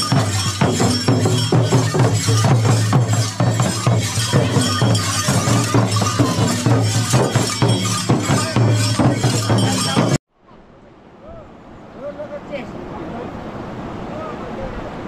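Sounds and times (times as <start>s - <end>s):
bells jingling: 0.0s - 10.2s
frame drums beaten fast: 0.0s - 10.2s.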